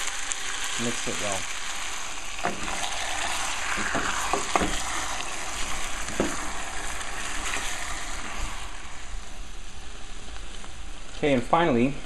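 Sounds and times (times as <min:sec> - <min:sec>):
food sizzling in hot oil: 0:00.0 - 0:12.0
wooden spoon knocking a pan: 0:03.7 - 0:05.0, 0:06.1 - 0:06.5.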